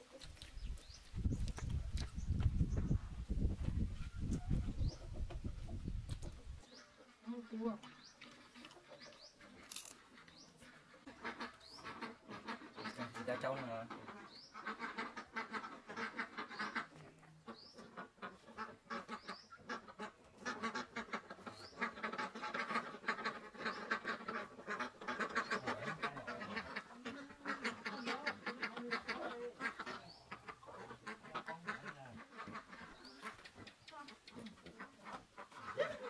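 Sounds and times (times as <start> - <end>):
animal calls: 20.5 - 36.0.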